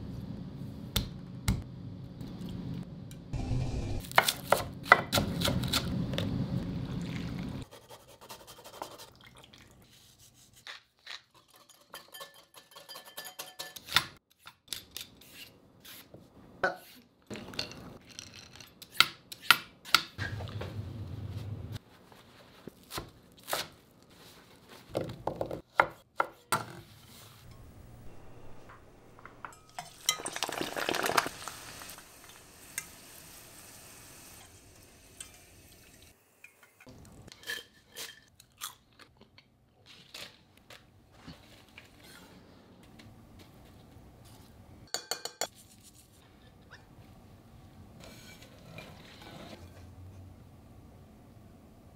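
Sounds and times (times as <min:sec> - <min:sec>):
sprouts sizzling in hot oil: 0:29.8 - 0:36.7
utensils and glass bowl knocking: 0:44.9 - 0:45.5.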